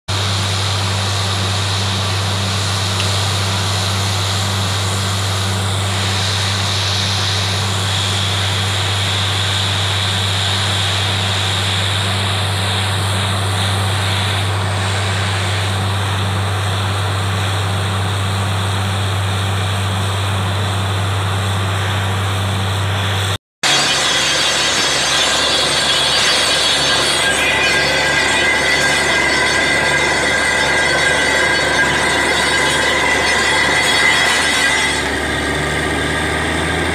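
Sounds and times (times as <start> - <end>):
drilling rig running: 0.1 - 36.9.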